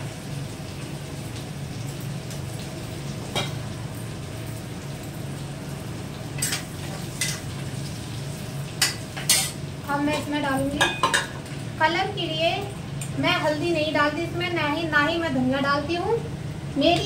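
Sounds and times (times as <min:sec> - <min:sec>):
chillies sizzling in oil: 0:00.0 - 0:17.0
metal spoon clinking on pan: 0:10.8 - 0:11.3.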